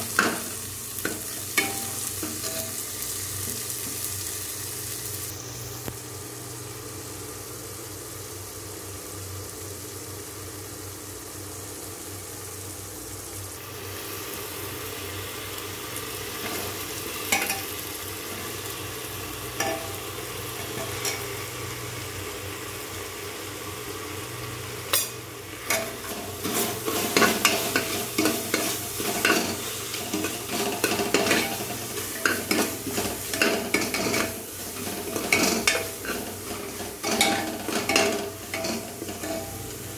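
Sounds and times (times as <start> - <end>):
masala sizzling in a pot: 0.0 - 39.9
ladle scraping and clinking pot: 25.0 - 39.7.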